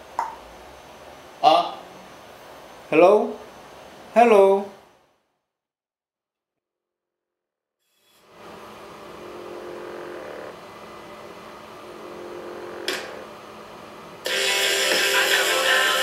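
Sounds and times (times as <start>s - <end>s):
steady hum with tones: 8.3s - 16.0s
loud music: 14.2s - 16.0s.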